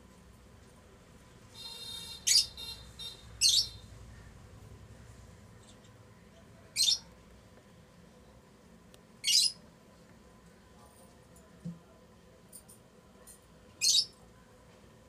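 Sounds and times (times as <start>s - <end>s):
shrill bird chirps: 1.6s - 3.9s, 6.8s - 7.1s, 9.2s - 9.6s, 13.8s - 14.2s.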